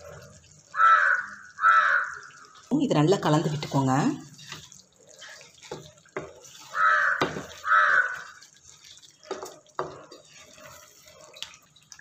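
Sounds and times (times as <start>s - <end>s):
spatula stirring thick gravy: 0.0s - 12.0s
crow cawing: 0.7s - 2.4s, 6.6s - 8.3s
spatula knocking against pan: 5.6s - 7.8s, 9.3s - 10.2s.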